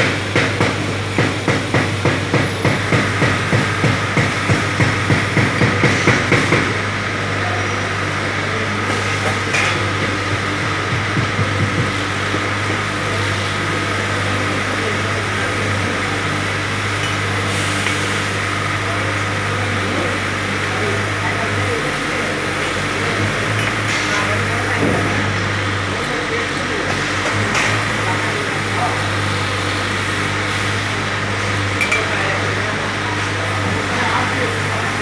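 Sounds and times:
rhythmic mechanical knocking: 0.0s - 7.0s, 8.8s - 18.0s
factory machinery hum: 0.0s - 35.0s.

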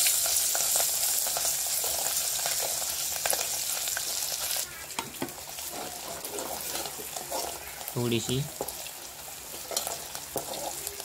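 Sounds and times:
spices sizzling in pot: 0.0s - 11.0s
stirring clicks and scrapes: 5.6s - 7.7s, 9.4s - 11.0s.

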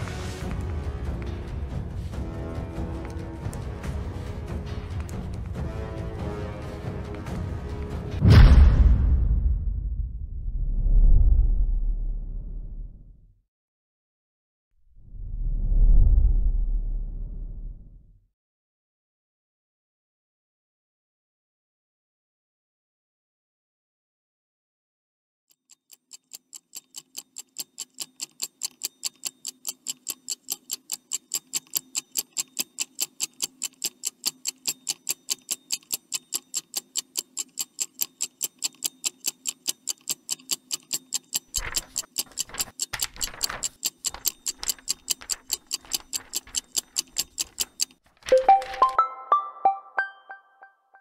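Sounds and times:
clock-like ticking: 25.5s - 48.9s.

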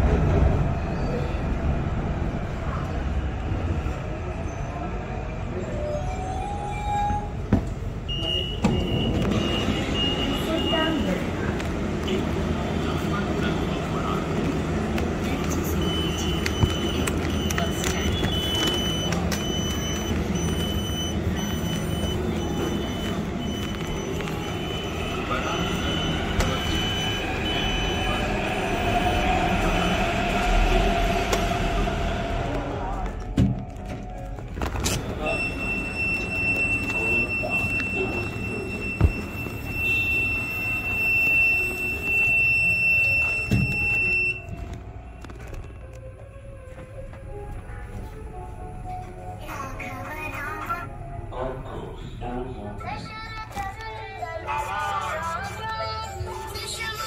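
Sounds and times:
train running rumble: 8.7s - 51.8s
train wheels squealing: 35.2s - 44.4s.

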